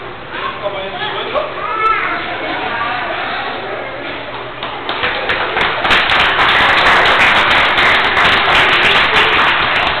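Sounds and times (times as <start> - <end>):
audience applause: 4.6 - 10.0.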